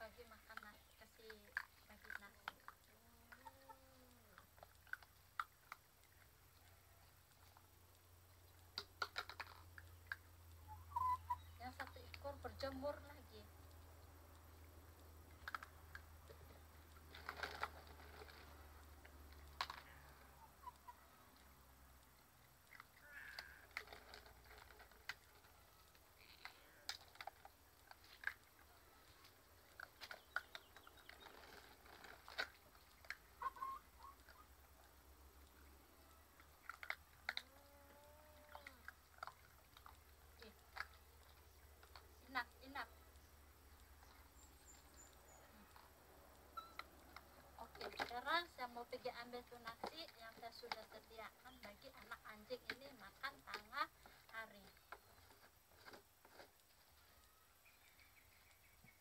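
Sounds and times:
crackers crunching: 12.9 - 58.9.

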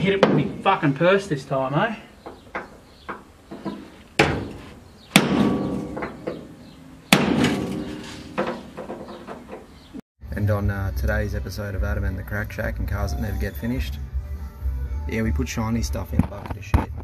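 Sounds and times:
hammer striking steel punch: 4.2 - 6.5, 7.1 - 8.6.

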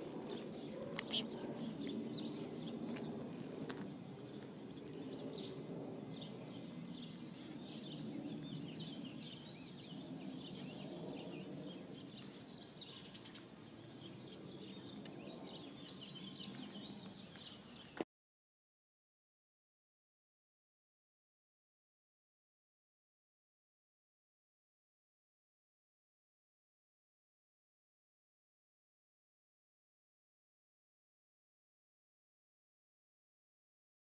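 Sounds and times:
small birds chirping: 0.0 - 18.0
outdoor background noise: 0.0 - 18.1.

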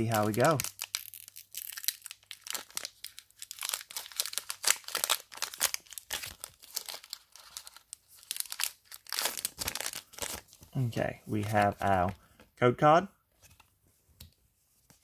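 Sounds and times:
foil wrapper crinkling and tearing: 0.0 - 10.6.

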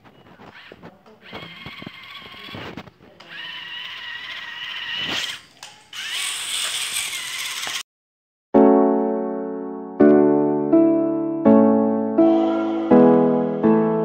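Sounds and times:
toy motor whine with gear chatter: 0.6 - 2.7, 3.3 - 7.8.

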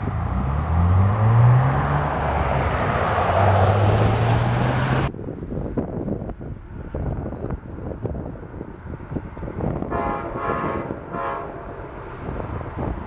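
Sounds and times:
vehicle engine droning: 0.0 - 5.1.

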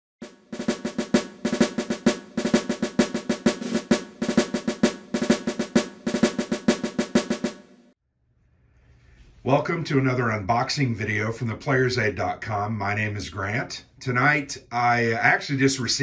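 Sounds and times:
snare drum rolls: 0.2 - 8.0.

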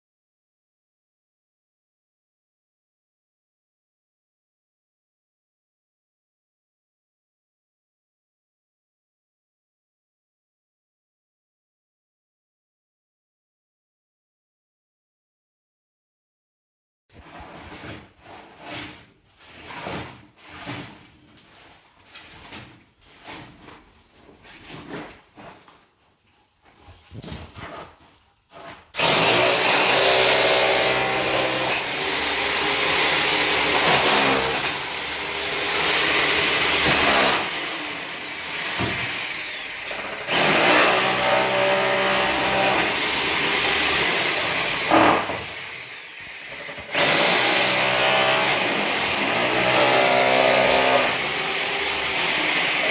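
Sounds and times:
power tool cutting brick: 28.6 - 52.9.

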